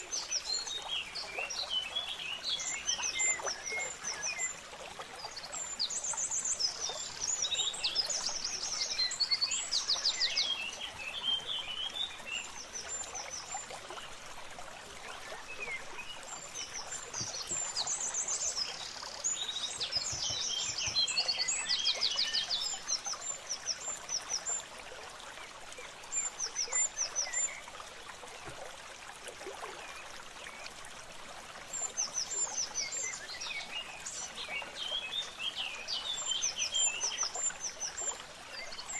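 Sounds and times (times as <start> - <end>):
small birds chirping and trilling: 15.1 - 24.7.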